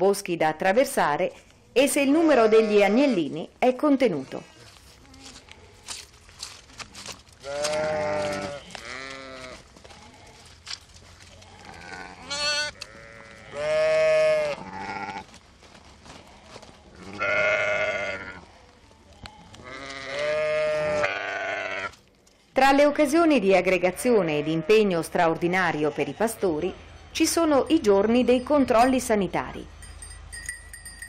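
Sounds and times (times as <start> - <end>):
sheep bleating: 2.2 - 3.3, 7.4 - 10.5, 11.4 - 15.3, 16.3 - 18.5, 19.2 - 22.0.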